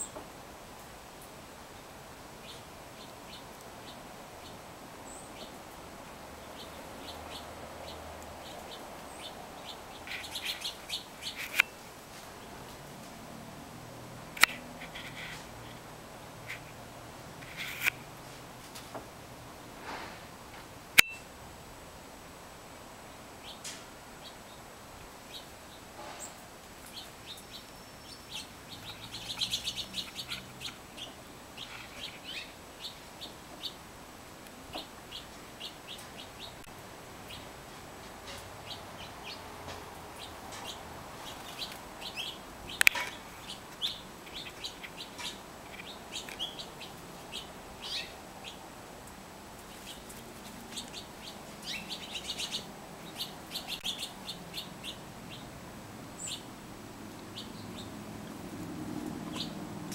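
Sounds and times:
small birds chirping: 0.0s - 16.8s, 21.0s - 21.3s, 23.0s - 59.9s.

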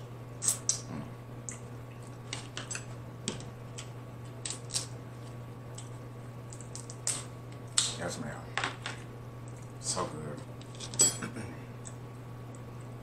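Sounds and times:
wet mouth sound: 0.4s - 1.6s
crab shells cracking: 2.2s - 5.0s, 5.7s - 8.0s.

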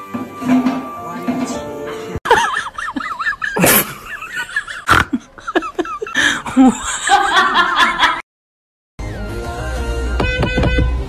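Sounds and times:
people chuckling and laughing: 2.2s - 8.2s.

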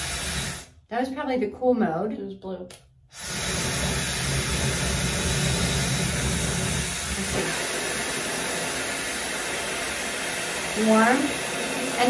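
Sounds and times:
hair dryer running: 0.0s - 0.7s, 3.1s - 12.0s.

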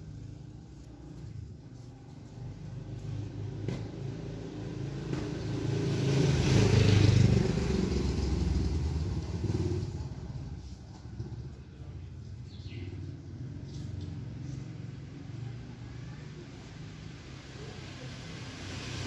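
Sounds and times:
passing motor vehicle engine: 0.0s - 19.0s.

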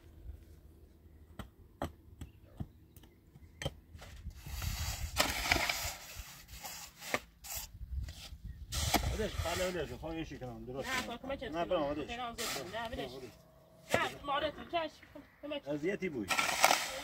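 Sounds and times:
shovel scraping through mortar: 4.0s - 9.9s, 10.8s - 11.2s, 12.4s - 13.3s, 16.3s - 17.0s.

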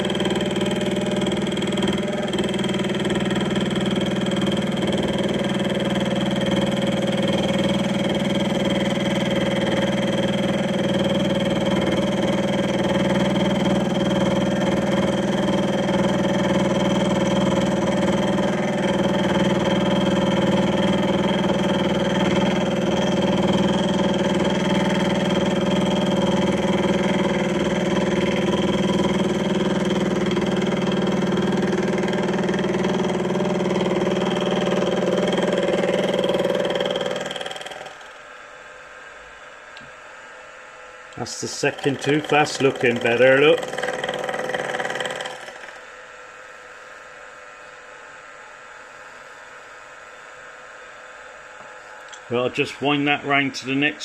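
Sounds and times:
milling machine cutting metal: 0.0s - 38.2s, 41.2s - 46.0s.

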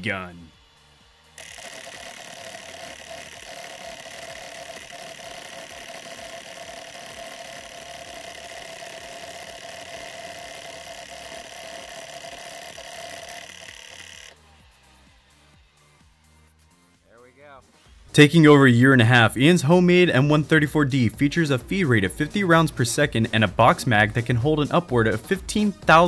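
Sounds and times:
minigun firing mechanical buzz: 1.4s - 14.4s.

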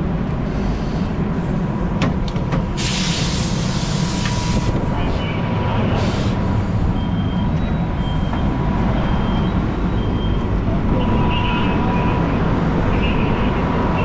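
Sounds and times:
diesel engine rumbling: 0.0s - 14.0s
reversing alarm beeps: 6.8s - 11.6s.

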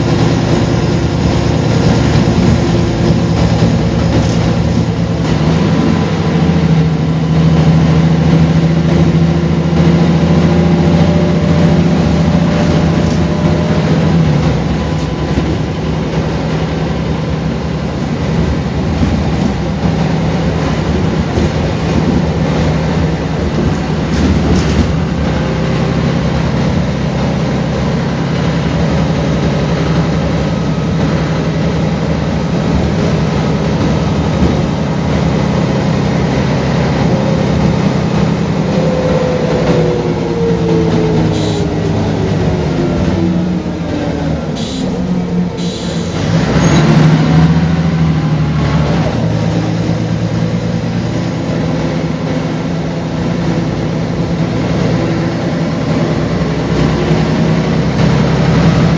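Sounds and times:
bus engine drone: 0.0s - 58.9s.

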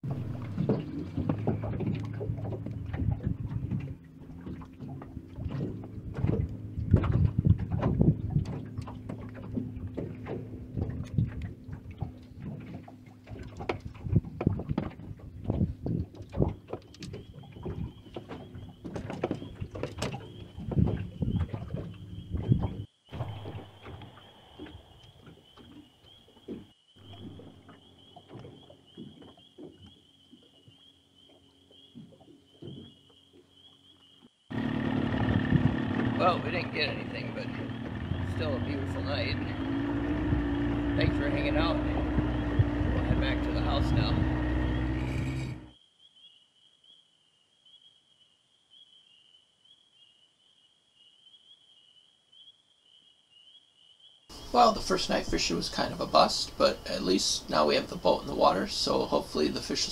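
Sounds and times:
waves lapping against metal hull: 0.0s - 45.8s, 54.3s - 59.9s
low steady hum: 34.5s - 45.8s.

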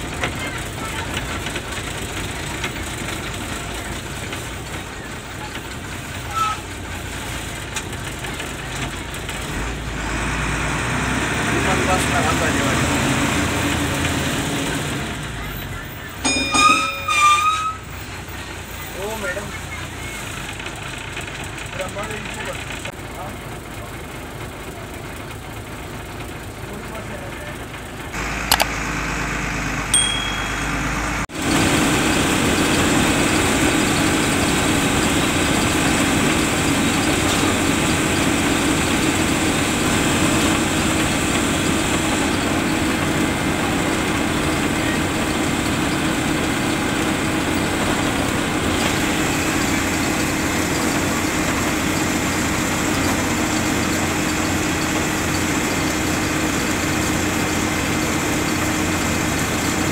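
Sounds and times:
bus engine and road drone: 0.0s - 59.9s
short high beeps: 16.2s - 17.9s, 30.0s - 30.9s.

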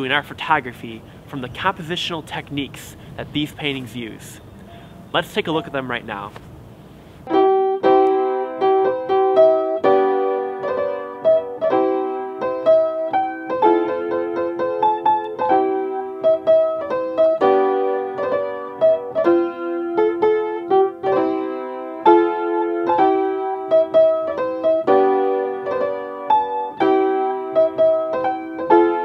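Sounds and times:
piano music: 7.2s - 29.0s.

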